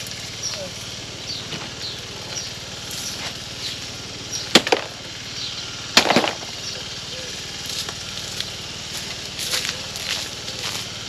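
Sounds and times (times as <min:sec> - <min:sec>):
stones clattering into wheelbarrow: 0:06.0 - 0:06.5.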